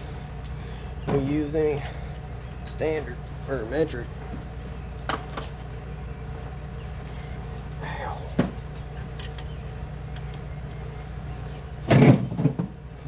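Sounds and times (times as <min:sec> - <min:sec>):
steady low hum: 0:00.0 - 0:13.0
man saying ow: 0:07.8 - 0:08.4.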